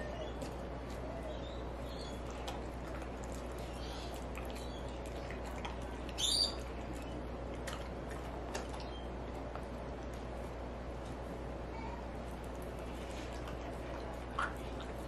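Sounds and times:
dog chewing and licking: 1.8 - 11.2, 12.2 - 15.0.

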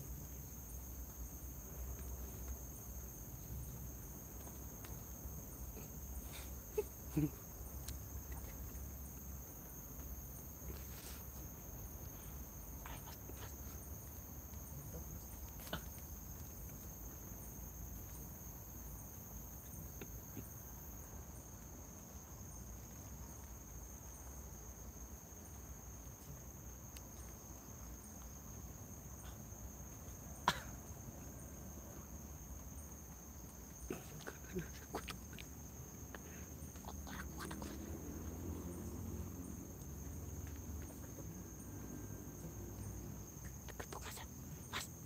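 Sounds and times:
crickets chirring: 0.0 - 45.0.

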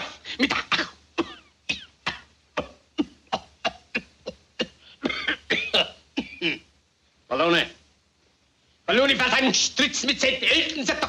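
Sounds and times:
man coughing: 0.0 - 6.7.

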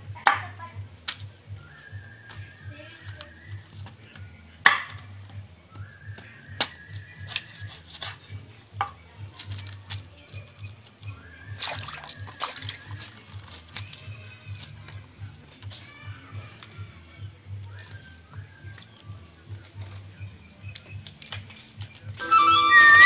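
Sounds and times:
soft background music: 0.0 - 23.0
pieces splashing into water: 11.6 - 13.1.

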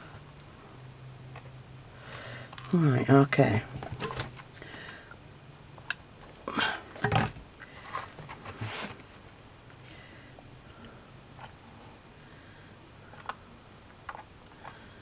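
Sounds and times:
hands handling wooden model: 3.7 - 4.6.

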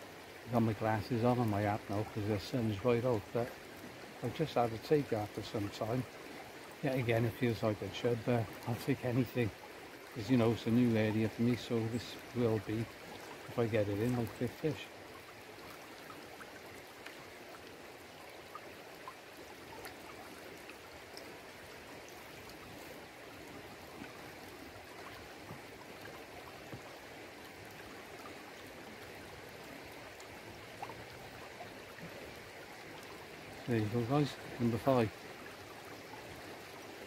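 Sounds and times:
river flowing: 0.0 - 37.0
faint small ticks: 14.2 - 21.4.

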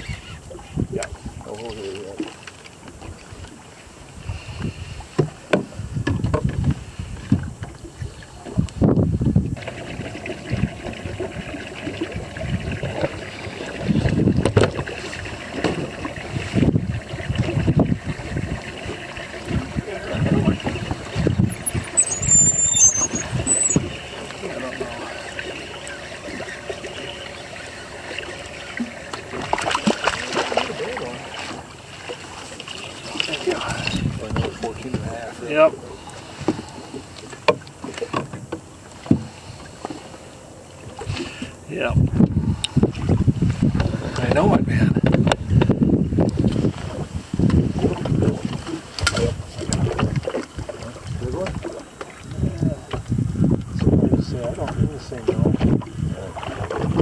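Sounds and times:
wind on microphone: 0.0 - 2.0, 2.9 - 25.1, 33.4 - 37.0, 40.8 - 57.0
water lapping against boat: 0.0 - 57.0.

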